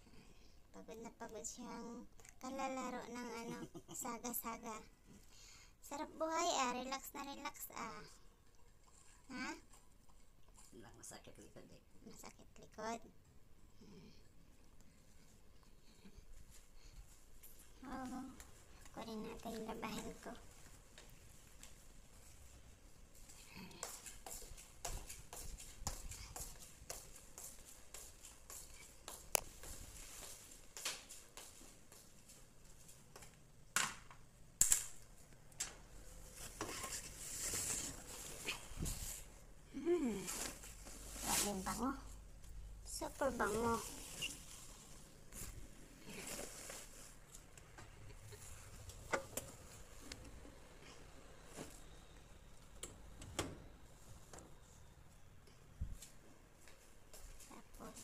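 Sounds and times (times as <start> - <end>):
laundry rustling: 35.6 - 52.8.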